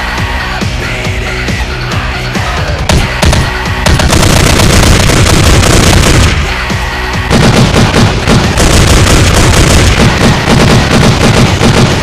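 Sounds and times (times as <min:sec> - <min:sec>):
loud background music: 0:00.0 - 0:12.0
gunfire sound effects: 0:02.9 - 0:06.6, 0:07.3 - 0:12.0.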